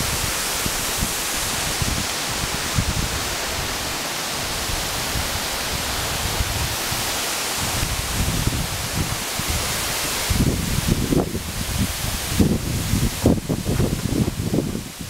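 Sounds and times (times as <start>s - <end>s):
low gusty rumbles: 0.0s - 15.0s
waterfall rushing: 0.0s - 15.0s.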